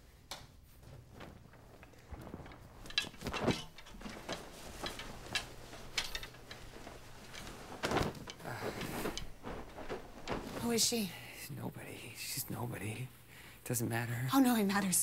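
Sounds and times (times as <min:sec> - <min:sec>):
cloth rustling: 0:00.0 - 0:11.4.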